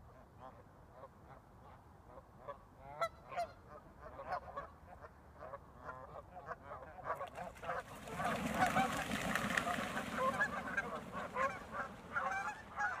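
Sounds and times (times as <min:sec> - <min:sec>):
geese honking: 0:07.2 - 0:13.0
wingbeats and splashing: 0:07.2 - 0:13.0.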